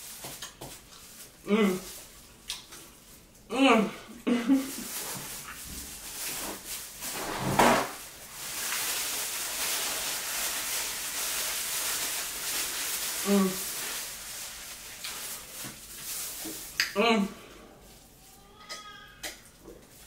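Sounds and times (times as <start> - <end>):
paper towel crinkling on gloves: 0.0 - 3.4, 4.4 - 16.8.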